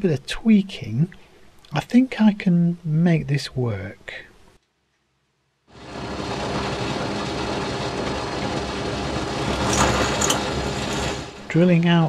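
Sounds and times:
pillar drill motor hum: 5.8s - 11.5s.

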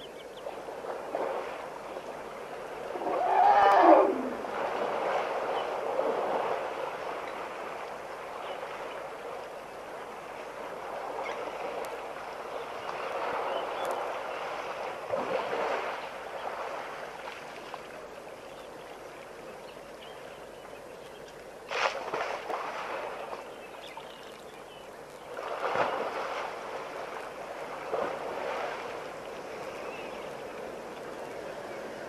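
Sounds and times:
elephant splashing in mud: 21.7s - 23.4s, 25.3s - 29.1s.

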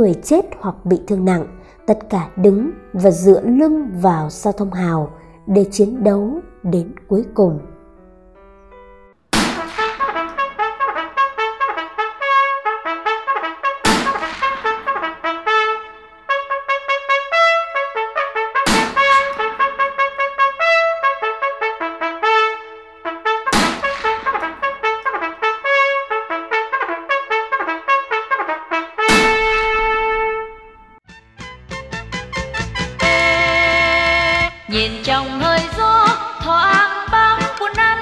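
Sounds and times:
trumpet playing quick melody: 9.4s - 35.1s.

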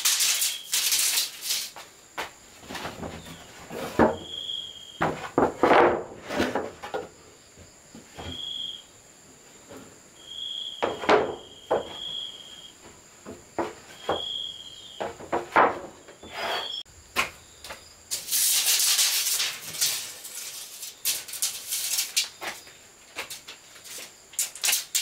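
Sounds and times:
insect high drone: 0.0s - 2.6s, 4.2s - 5.0s, 7.2s - 13.2s, 13.9s - 15.2s.

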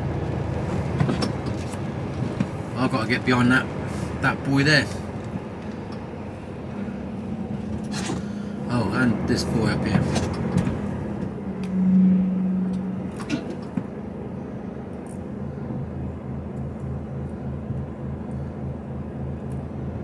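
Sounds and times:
diesel engine humming in cab: 0.0s - 20.0s
loud steady tone: 11.4s - 14.8s.

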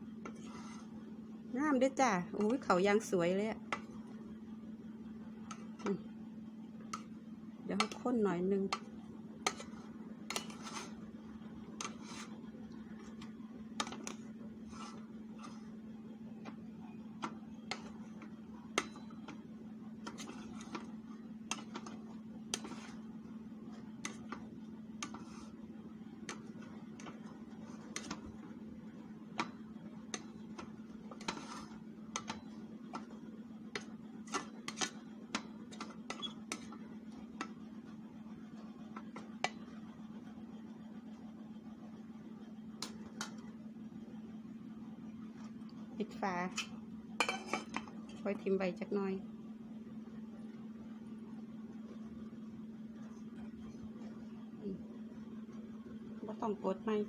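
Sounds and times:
steady low hum: 0.0s - 57.0s.

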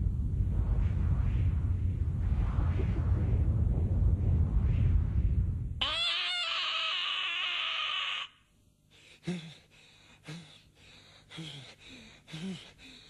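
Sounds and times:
high wavering scream: 5.8s - 8.4s
young man panting heavily: 8.9s - 13.0s.

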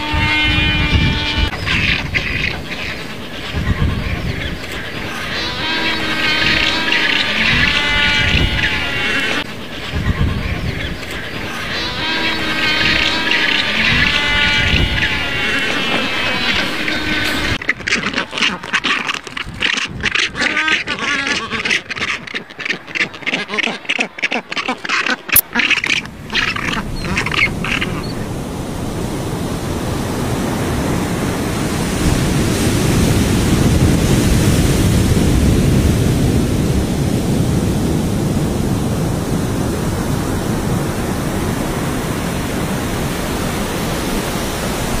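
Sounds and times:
seabirds calling harshly: 0.0s - 33.0s
waterfall rushing: 4.2s - 9.9s, 10.9s - 17.8s, 26.0s - 45.0s.

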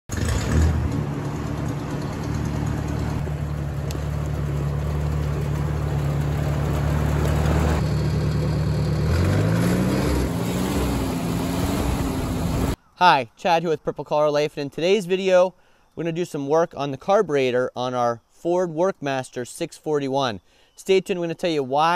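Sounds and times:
tractor engine running: 0.1s - 12.8s.

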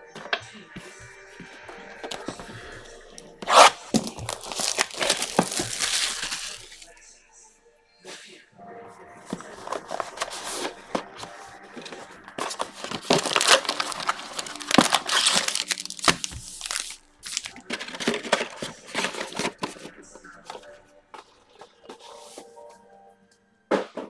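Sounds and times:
plastic wrapping crinkling and tearing: 3.4s - 7.0s, 9.3s - 20.7s.

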